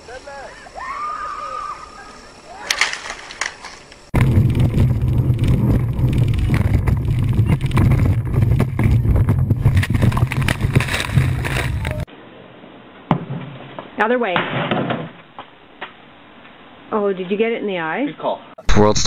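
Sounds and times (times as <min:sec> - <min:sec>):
hull pounding on water: 0:04.2 - 0:11.6.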